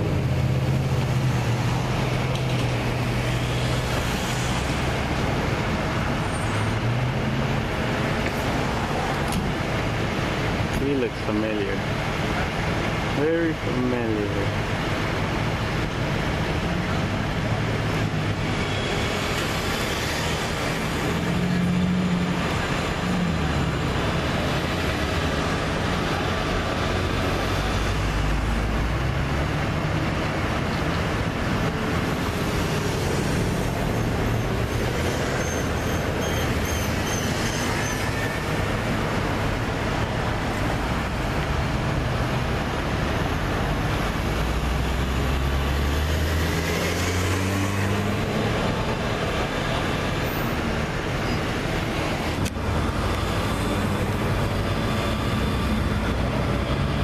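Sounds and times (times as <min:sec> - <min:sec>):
cars driving past: 0:00.0 - 0:57.0
engine revving as vehicle pulls away: 0:42.8 - 0:57.0.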